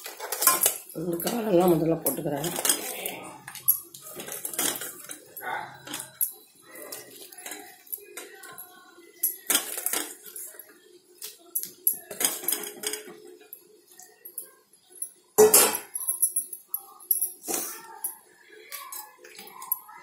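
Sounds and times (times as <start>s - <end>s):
clinks against metal pan: 15.4s - 16.0s.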